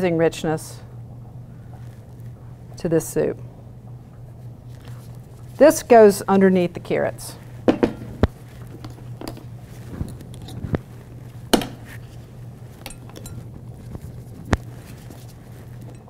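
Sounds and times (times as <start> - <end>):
steady low hum: 0.0 - 16.0
glass jars and utensils clinking: 12.8 - 13.5.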